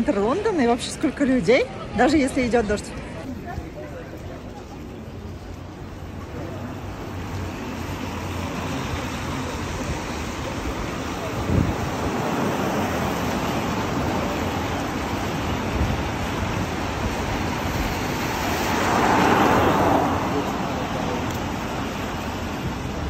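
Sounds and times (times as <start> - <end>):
tyres hissing on wet road: 3.4 - 23.0
vehicle swishing past: 17.4 - 22.9.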